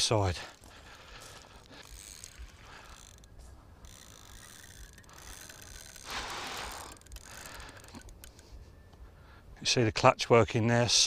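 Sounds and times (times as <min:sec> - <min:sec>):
fishing reel drag slipping: 0:00.5 - 0:08.6.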